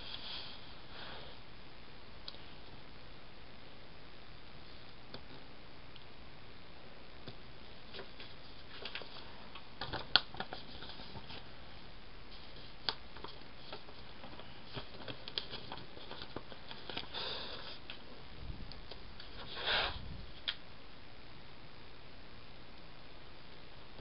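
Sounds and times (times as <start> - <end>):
paper rustling: 7.9 - 11.5, 12.3 - 18.0.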